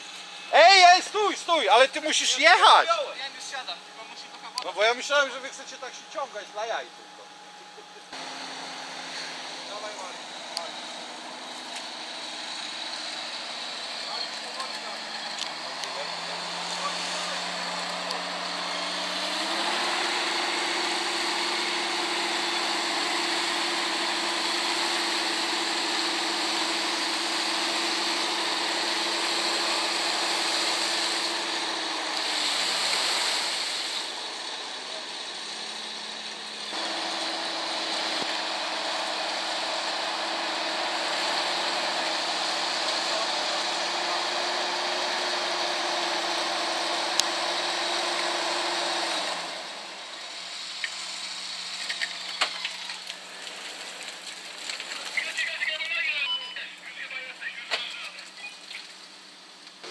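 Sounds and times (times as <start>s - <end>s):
engine running at raised revs: 0.0s - 56.2s.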